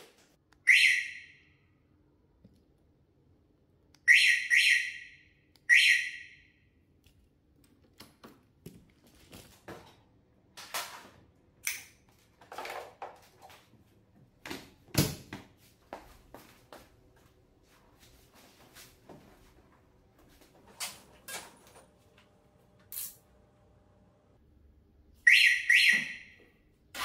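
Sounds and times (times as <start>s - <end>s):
alarm siren chirps: 0.6s - 1.5s, 4.0s - 6.6s, 25.2s - 26.5s.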